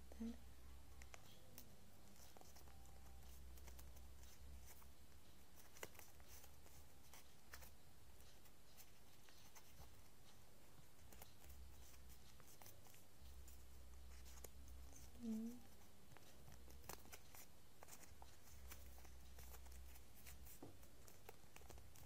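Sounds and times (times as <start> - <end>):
paper rustling: 15.8 - 22.0.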